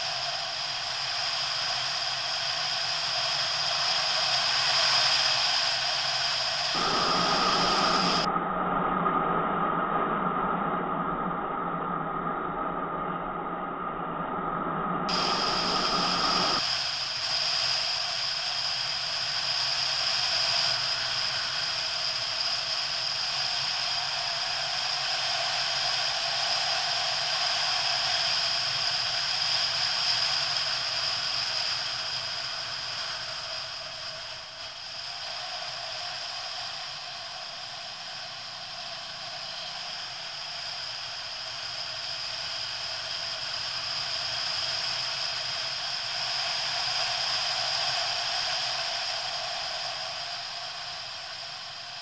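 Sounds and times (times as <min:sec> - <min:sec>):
wind and road rush: 0:06.8 - 0:16.6.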